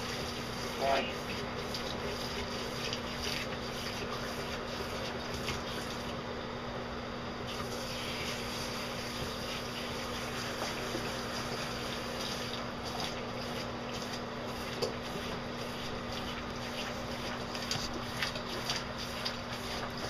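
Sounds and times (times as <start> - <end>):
shower spray hissing: 7.5 - 12.6.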